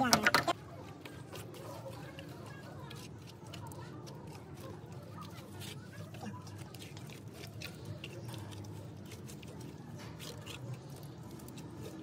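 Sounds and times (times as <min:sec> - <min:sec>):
wet mud plaster smearing: 0:00.0 - 0:12.0.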